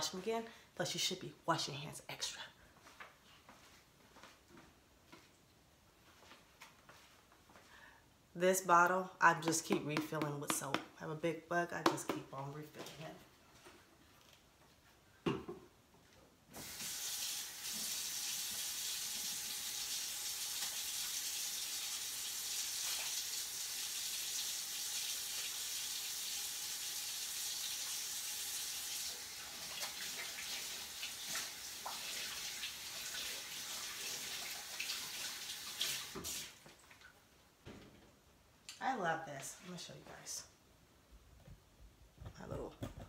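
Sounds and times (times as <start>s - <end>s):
faucet running into metal sink: 16.6s - 36.5s.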